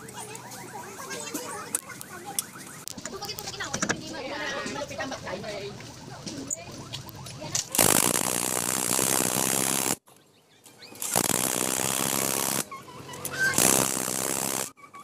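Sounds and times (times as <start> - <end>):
impact wrench hammering: 7.8 - 10.0, 11.0 - 12.6.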